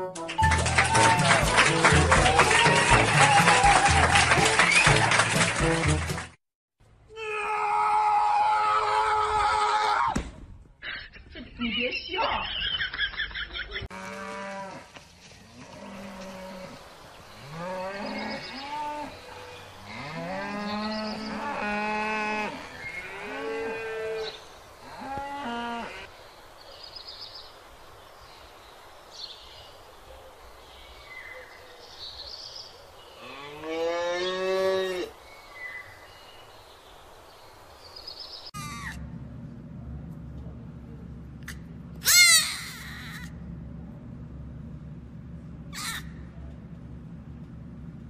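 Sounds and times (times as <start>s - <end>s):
cattle mooing: 13.9s - 14.9s, 15.5s - 16.8s, 17.4s - 26.1s.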